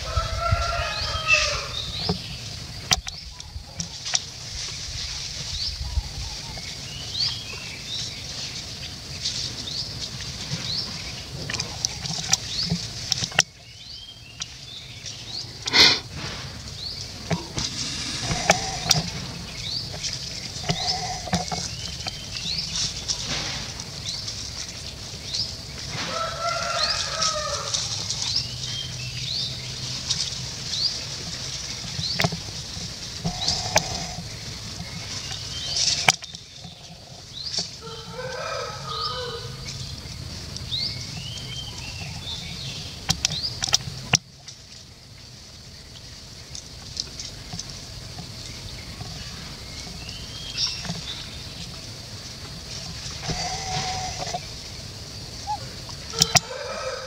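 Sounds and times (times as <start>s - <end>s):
low animal calls: 15.3s - 16.1s, 17.0s - 22.2s, 33.2s - 34.9s, 53.0s - 57.0s
high rising bird chirps: 16.9s - 21.1s.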